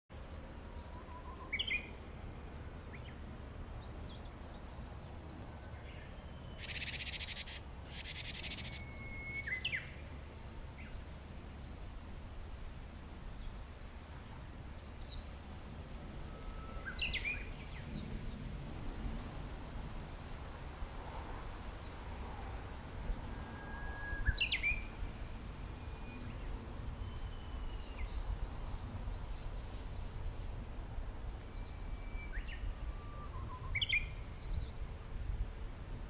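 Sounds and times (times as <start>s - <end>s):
small birds chirping: 3.8s - 10.0s.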